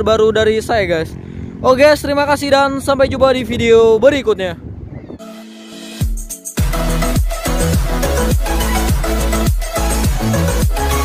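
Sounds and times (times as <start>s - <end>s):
electronic dance music: 5.2s - 11.0s
falling bass sweep: 5.2s - 11.0s.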